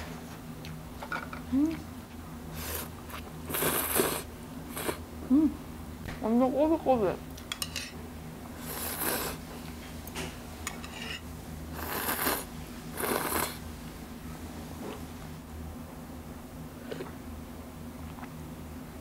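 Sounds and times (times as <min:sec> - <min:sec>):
low room hum: 0:00.0 - 0:19.0
person slurping noodles: 0:02.6 - 0:05.0, 0:08.6 - 0:09.4, 0:11.8 - 0:13.6.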